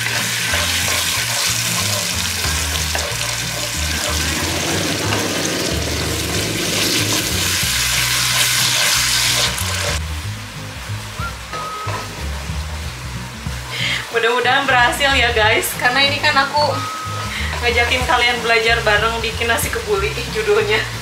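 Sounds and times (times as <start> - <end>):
tomatoes sizzling in a pan: 0.0 - 21.0.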